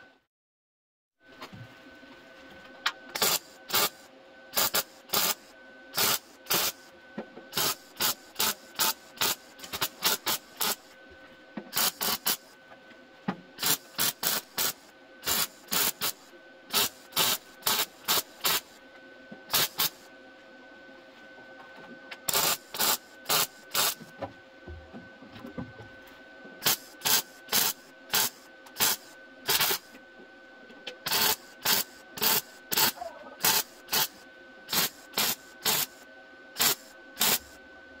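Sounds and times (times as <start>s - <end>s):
steady hum: 1.2s - 38.0s
welding arc crackling: 3.2s - 4.0s, 4.6s - 6.8s, 7.6s - 10.9s, 11.7s - 12.5s, 13.6s - 18.8s, 19.5s - 20.0s, 22.3s - 24.0s, 26.6s - 30.0s, 31.0s - 36.0s, 36.6s - 37.6s.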